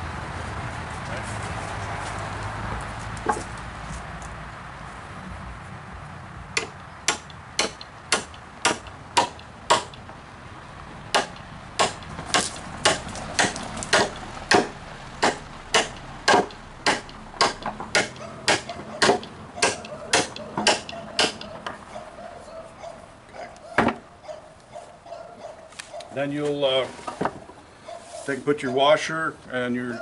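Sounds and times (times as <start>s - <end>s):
sledgehammer striking metal bolt: 6.6s - 10.0s, 11.1s - 21.6s.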